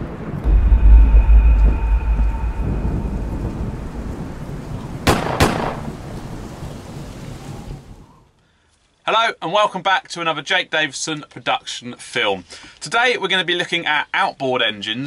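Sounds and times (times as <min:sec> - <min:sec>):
sharp thunder cracks: 0:00.0 - 0:06.7
deep thunder rumble: 0:00.0 - 0:07.1
rain-like hiss: 0:00.1 - 0:09.0.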